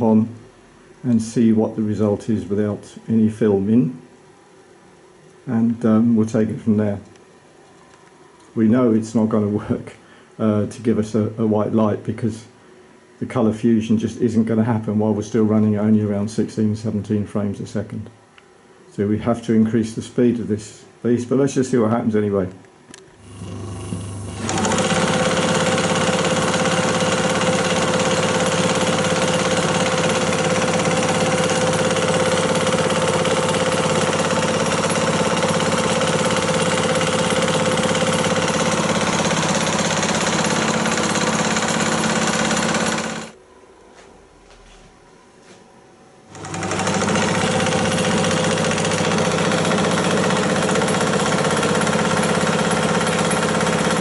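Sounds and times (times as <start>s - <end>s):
film projector whirring and clattering: 22.9s - 43.4s, 46.3s - 54.0s.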